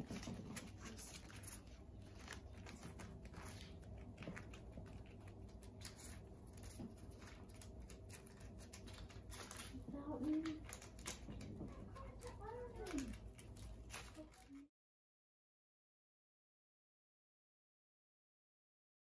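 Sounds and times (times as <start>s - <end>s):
hedgehog rustling on pads: 0.0s - 14.7s.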